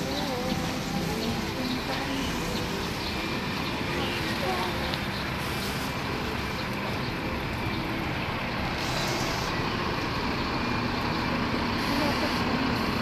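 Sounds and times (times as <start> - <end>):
city road traffic: 0.0 - 13.0
brief hiss: 8.8 - 9.6.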